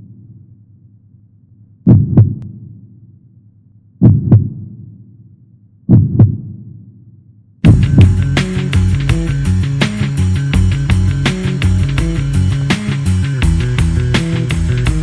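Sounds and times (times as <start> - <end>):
deep heartbeat thumps: 1.9 - 2.6, 4.0 - 4.8, 5.9 - 6.7, 7.6 - 9.5
loud band music: 7.7 - 15.0.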